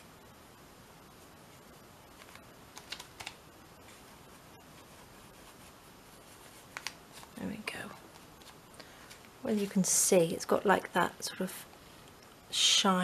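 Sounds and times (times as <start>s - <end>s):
fingertips tapping on paper: 2.1s - 4.0s, 4.6s - 7.4s.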